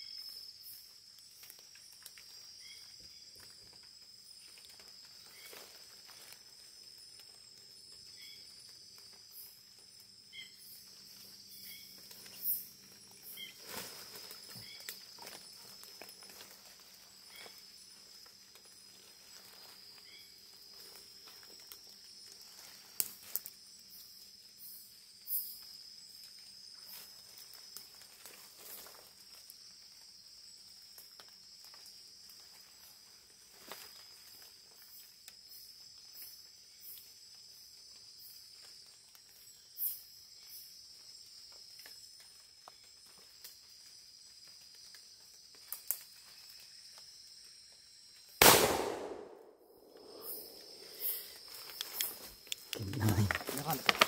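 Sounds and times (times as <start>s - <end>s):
insect chirring: 0.0s - 54.0s.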